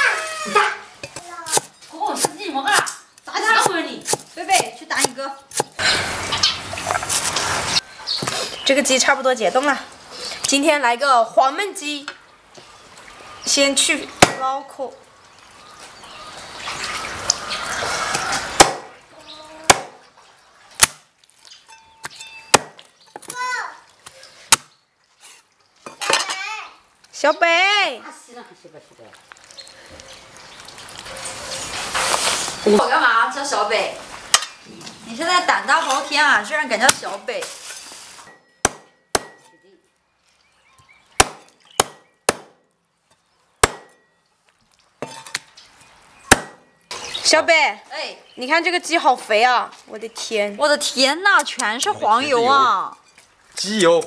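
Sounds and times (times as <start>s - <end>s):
cleaver chopping on wooden block: 3.6s - 5.8s, 14.2s - 14.4s, 18.6s - 18.9s, 19.7s - 20.0s, 22.5s - 22.8s, 38.6s - 39.5s, 41.2s - 42.6s, 43.6s - 44.0s, 46.3s - 46.6s.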